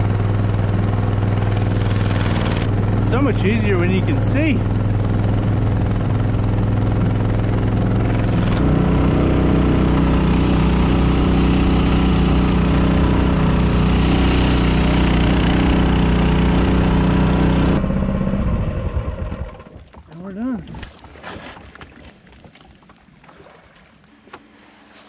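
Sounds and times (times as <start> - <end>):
boat motor running: 0.0 - 20.6, 24.1 - 25.0.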